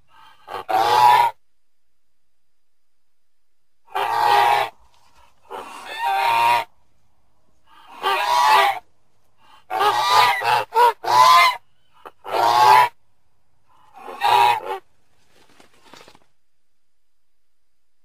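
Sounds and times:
goose honking: 0.2 - 1.4, 3.9 - 6.7, 7.7 - 8.8, 9.4 - 13.0, 14.0 - 14.8.

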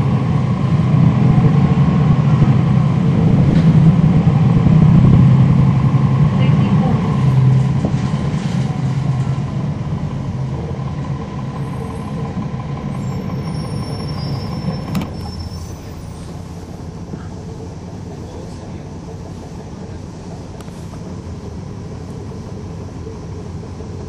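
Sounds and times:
bus engine hum: 0.0 - 24.0.

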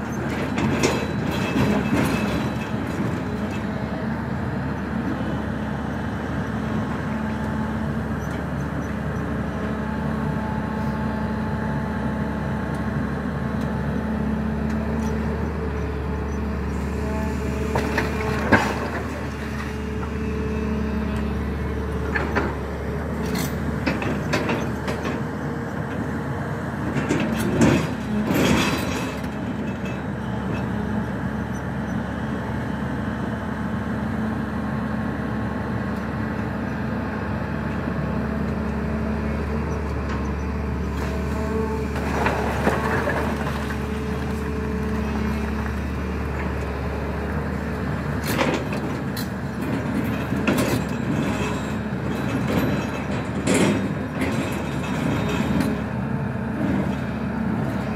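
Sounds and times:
excavator clanks and knocks: 0.0 - 11.8, 12.6 - 32.0, 35.8 - 57.9
excavator diesel engine running: 0.0 - 57.9.

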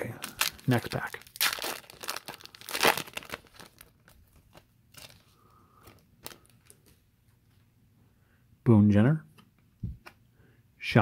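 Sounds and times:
foil wrapper crinkling and tearing: 0.0 - 5.3, 5.9 - 7.0.

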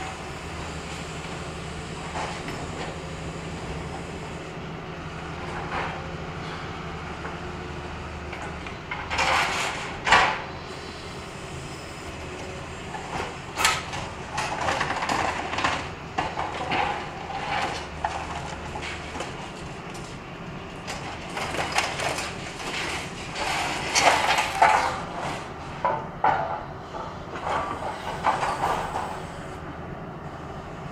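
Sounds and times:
excavator engine humming: 0.0 - 30.9
debris crashing and crunching: 20.8 - 25.5.

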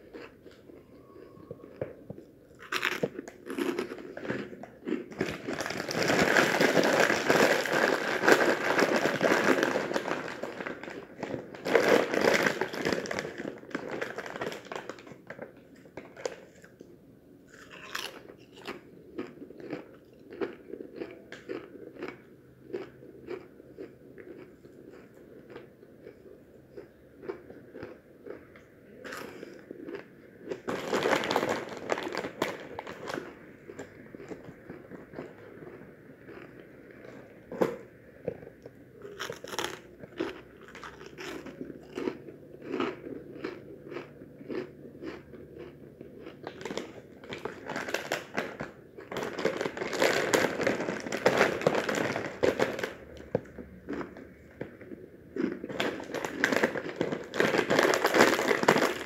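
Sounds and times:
crunching and chewing snacks: 0.0 - 59.0
plastic bag crinkling: 5.1 - 15.4, 30.6 - 34.4, 46.4 - 54.2, 55.4 - 59.0.

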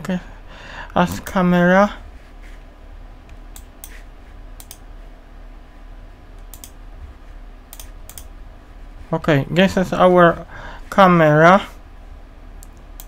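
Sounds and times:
steady low hum: 0.0 - 13.0
keyboard and mouse clicks: 3.3 - 4.0, 4.6 - 4.8, 6.4 - 6.8, 7.7 - 8.3.

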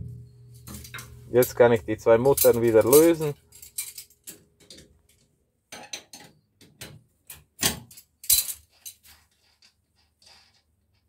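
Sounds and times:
metal tools clinking on nuts: 0.6 - 4.9, 7.8 - 9.2.

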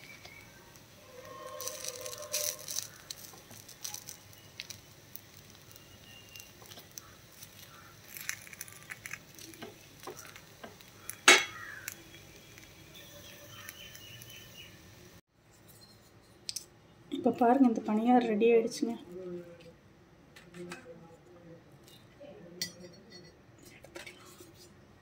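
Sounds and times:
food sizzling in oil: 0.0 - 15.2
wooden skewer scraping metal pan: 1.0 - 3.6.

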